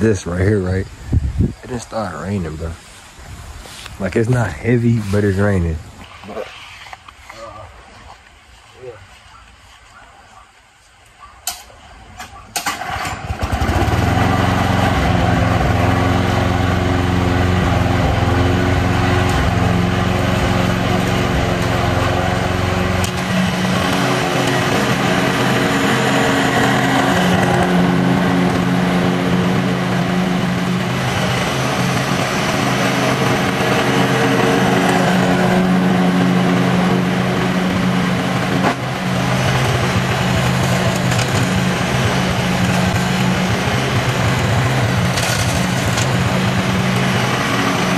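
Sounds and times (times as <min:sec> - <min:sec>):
lawn mower engine running: 0:12.6 - 0:47.9.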